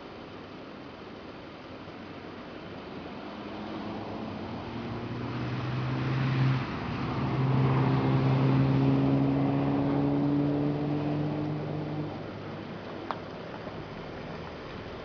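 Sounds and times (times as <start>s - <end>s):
vehicle engine passing: 3.1s - 12.8s.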